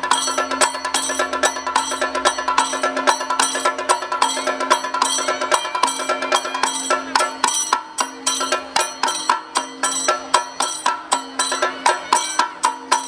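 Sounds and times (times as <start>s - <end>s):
rapid ringing percussion strikes: 0.0s - 13.0s.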